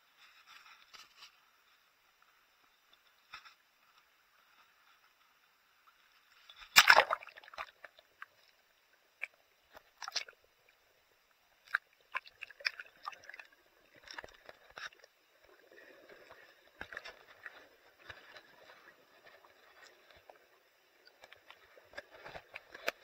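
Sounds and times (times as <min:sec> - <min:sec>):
underwater clicks and crackles: 0:00.1 - 0:23.0
sea water sloshing: 0:06.6 - 0:08.4, 0:11.7 - 0:23.0
underwater bubbling: 0:06.8 - 0:23.0.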